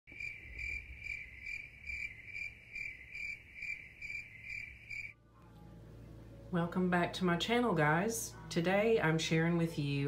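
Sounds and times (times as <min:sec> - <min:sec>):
insect chirping: 0:00.1 - 0:05.2.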